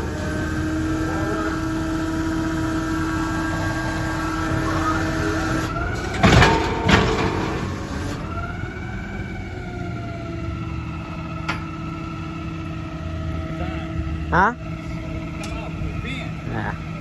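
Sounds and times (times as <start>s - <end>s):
rising whining tone: 0.0s - 6.6s
garbage truck idling: 0.0s - 17.0s.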